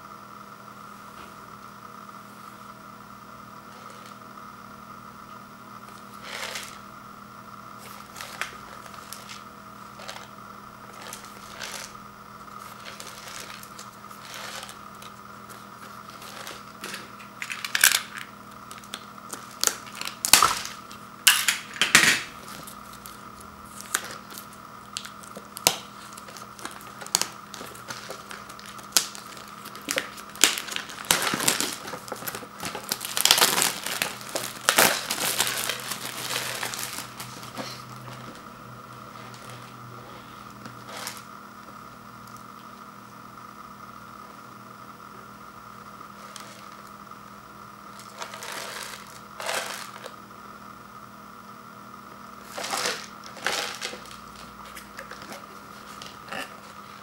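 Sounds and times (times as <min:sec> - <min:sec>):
plastic wrap crinkling and tearing: 0:15.9 - 0:21.0, 0:22.4 - 0:38.4, 0:47.9 - 0:50.1, 0:52.4 - 0:57.0.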